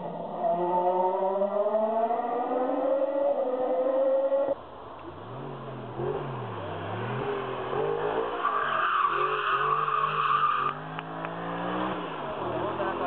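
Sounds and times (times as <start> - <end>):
race car engine revving: 5.2 - 13.0.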